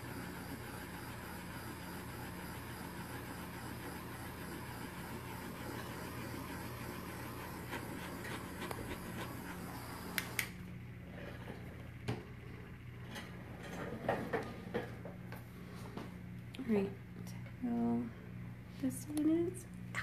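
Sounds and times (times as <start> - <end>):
small motor humming: 0.0 - 10.7
torch switch clicks: 10.1 - 10.6.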